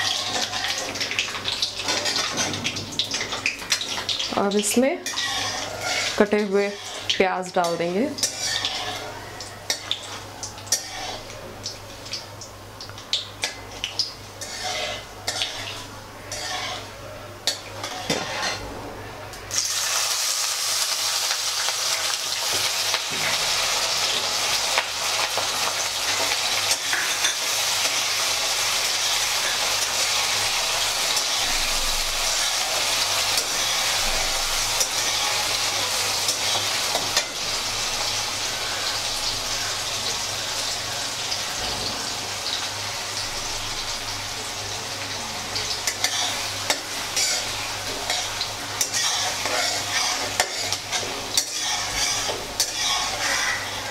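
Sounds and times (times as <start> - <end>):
onions sizzling in hot oil: 0.0 - 18.6, 19.5 - 53.9
ladle scraping metal pan: 5.0 - 9.1, 14.4 - 16.9, 17.8 - 18.6, 45.9 - 53.9.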